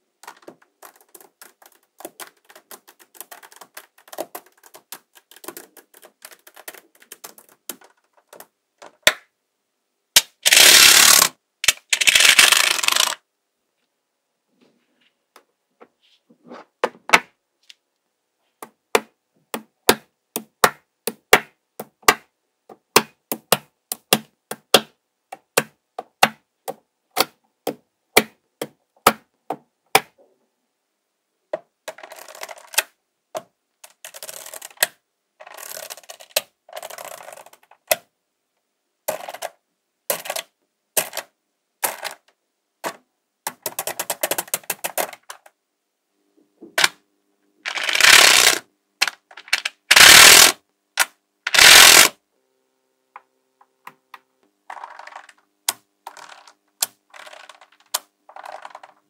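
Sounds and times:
magnetic balls clicking: 0.2 - 9.3, 10.2 - 13.2, 33.8 - 38.0, 47.7 - 52.1, 54.1 - 59.0
magnetic balls clattering: 10.5 - 13.2, 47.7 - 50.5, 54.7 - 55.4, 56.0 - 59.0.

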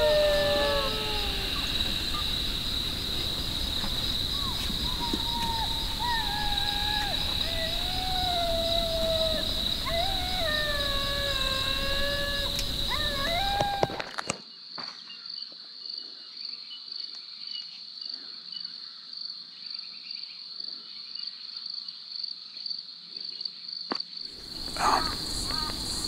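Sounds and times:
wild dog howl: 0.0 - 2.7, 4.2 - 14.2
insects chirring: 0.0 - 26.0.

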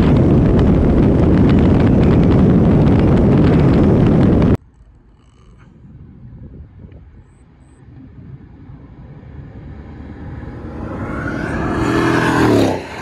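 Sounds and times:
car engine at full throttle passing: 8.2 - 13.0.

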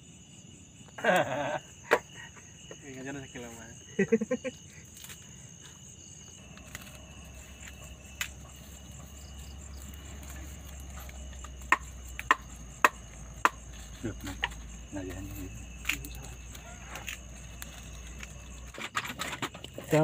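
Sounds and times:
crickets trilling: 0.0 - 20.0
food chopping knocks: 11.6 - 13.6.

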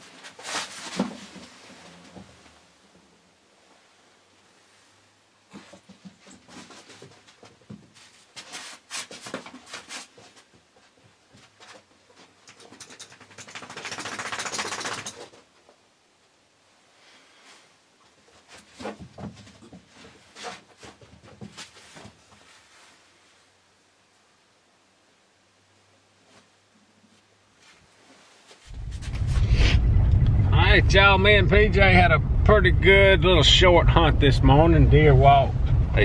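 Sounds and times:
rustling: 0.0 - 2.7, 4.6 - 15.8, 17.0 - 23.7, 26.2 - 29.9
dog claws scratching and clicking: 11.6 - 15.4.

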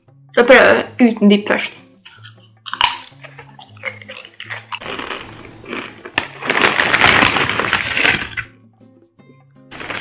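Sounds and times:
potato chip crunching: 2.0 - 8.5, 9.7 - 10.0
foil bag rustling: 4.8 - 8.5, 9.7 - 10.0.

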